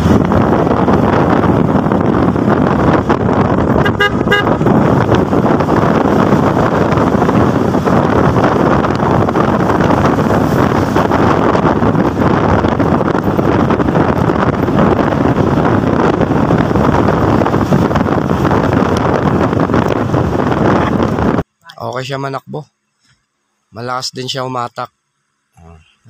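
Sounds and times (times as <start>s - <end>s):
scooter road noise: 0.0s - 21.4s
wind over microphone: 0.0s - 22.1s
vehicle horn toot: 3.8s - 4.7s.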